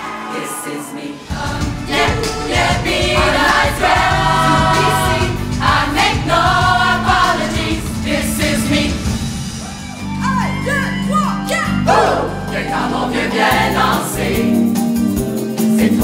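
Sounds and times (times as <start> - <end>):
wavering vocal line: 0.0 - 9.0, 11.8 - 14.6
choir singing held chords: 0.0 - 9.8, 11.8 - 14.8, 15.5 - 16.0
band with drums and bass: 1.4 - 12.3.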